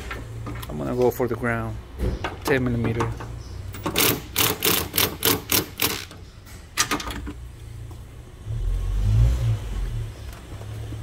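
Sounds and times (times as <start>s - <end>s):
ratchet clicking: 3.8s - 6.2s.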